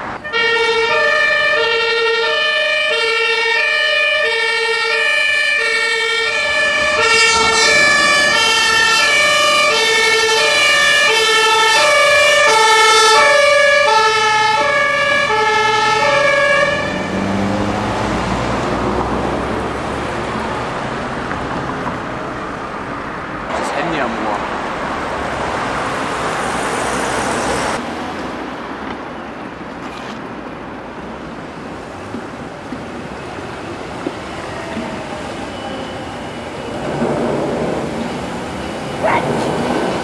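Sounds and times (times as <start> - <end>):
passing traffic: 0.0 - 40.0
two-tone siren: 0.2 - 17.8, 34.1 - 37.0, 37.8 - 40.0.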